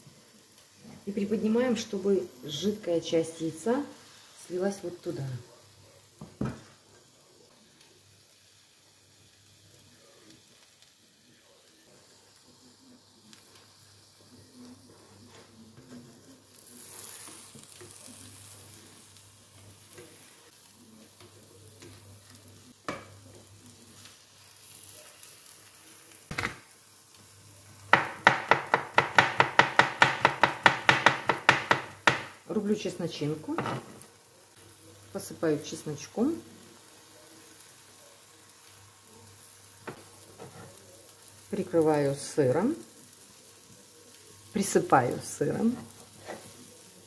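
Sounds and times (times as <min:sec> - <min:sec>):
omelette frying in a pan: 0:00.0 - 0:47.0
spatula working in a pan: 0:11.8 - 0:47.0
knife chopping on wooden board: 0:28.0 - 0:32.4.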